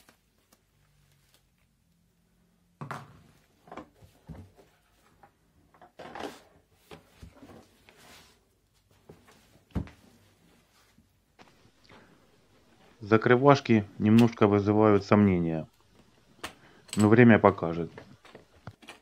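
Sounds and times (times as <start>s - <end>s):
bubble-wrap rustling: 0.0s - 2.0s.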